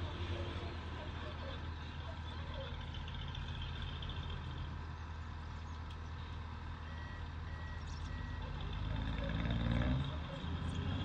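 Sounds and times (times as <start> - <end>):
reversing alarm beeping: 6.9 - 8.5.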